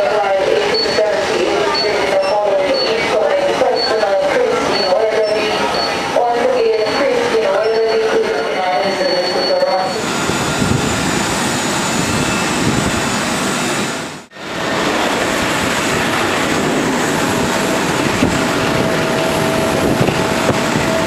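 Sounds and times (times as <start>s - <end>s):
loud jet noise: 8.1s - 21.0s.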